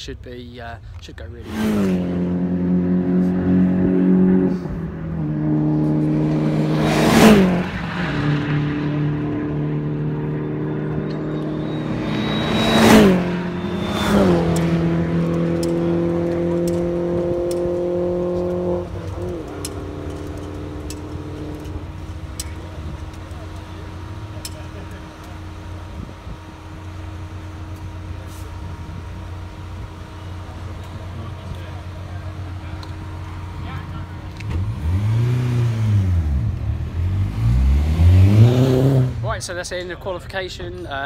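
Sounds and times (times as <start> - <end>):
race cars passing by: 1.4 - 41.0.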